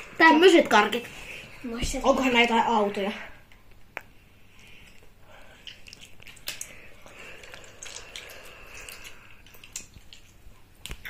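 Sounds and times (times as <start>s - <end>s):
chewing sweets: 4.0s - 11.0s.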